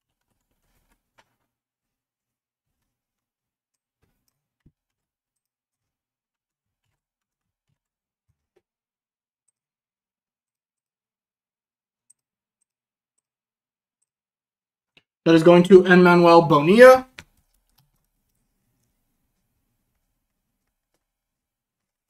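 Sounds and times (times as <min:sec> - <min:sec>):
faint clicks and taps: 0:00.0 - 0:09.7, 0:12.0 - 0:13.4, 0:17.1 - 0:22.0.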